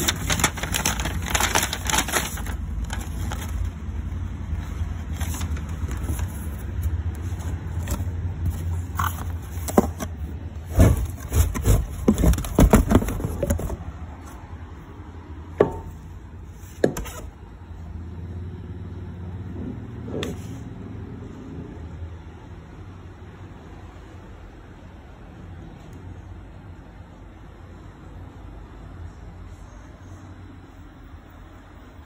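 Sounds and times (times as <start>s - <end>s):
cardboard box scraping: 0.0s - 3.6s, 4.8s - 13.9s.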